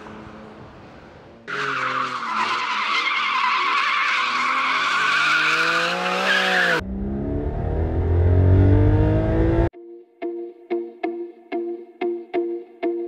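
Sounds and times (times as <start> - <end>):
tyres squealing: 1.5 - 6.8
car engine rising in pitch: 4.2 - 9.7.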